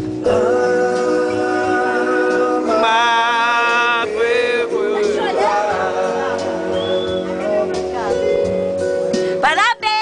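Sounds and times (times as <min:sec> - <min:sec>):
guitar: 0:00.0 - 0:10.0
man singing long notes: 0:00.2 - 0:07.1.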